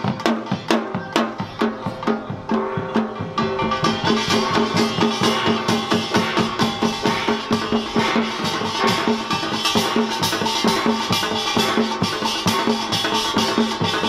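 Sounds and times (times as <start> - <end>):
hourglass drums struck fast: 0.0 - 14.0
small gongs ringing: 2.0 - 14.0.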